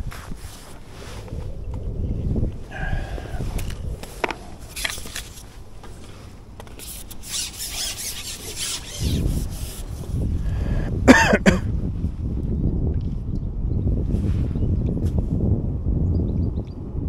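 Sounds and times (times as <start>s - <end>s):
fishing pole rubbing and scraping: 0.0s - 1.8s, 2.8s - 10.4s
wind buffeting microphone: 0.0s - 17.0s.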